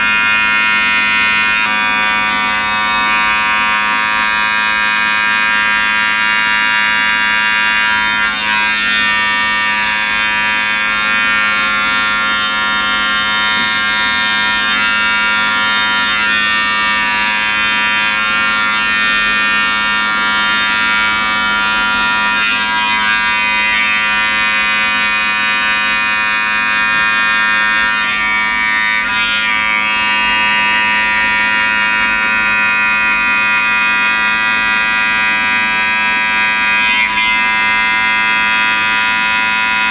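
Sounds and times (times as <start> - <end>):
electric hair clipper buzzing: 0.0 - 39.9.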